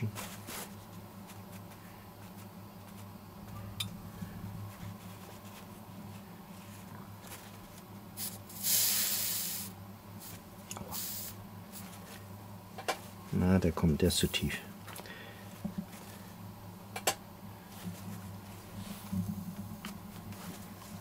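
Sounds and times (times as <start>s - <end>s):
steady low hum: 0.0s - 21.0s
steam hissing from iron: 8.2s - 9.8s, 10.9s - 11.4s.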